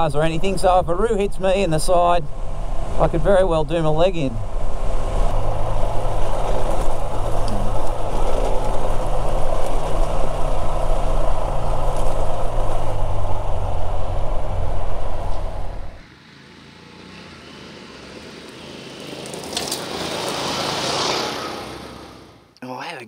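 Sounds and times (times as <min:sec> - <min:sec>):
wind rush: 0:00.0 - 0:16.0
motorcycle engine running: 0:00.0 - 0:22.0
tyre noise on gravel: 0:05.3 - 0:14.7.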